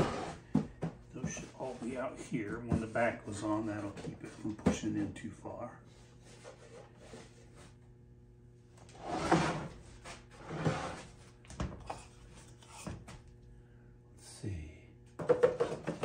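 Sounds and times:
wooden drawers sliding: 0.0s - 0.4s, 9.0s - 9.7s.

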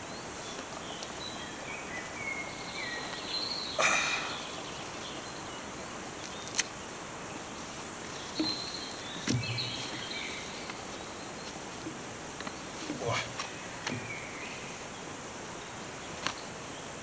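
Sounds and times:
distant bird calls: 0.0s - 17.0s.

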